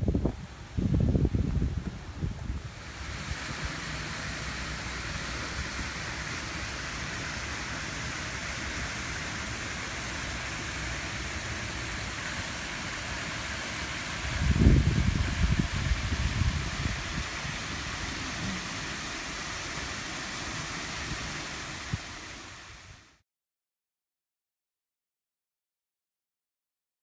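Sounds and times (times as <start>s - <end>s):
wind buffeting microphone: 0.0s - 3.7s, 14.2s - 18.7s
fountain water splashing: 0.8s - 23.2s.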